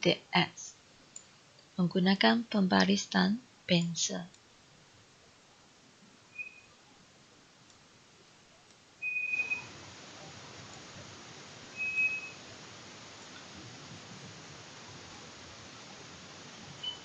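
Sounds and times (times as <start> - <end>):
faint hiss: 0.0 - 17.0.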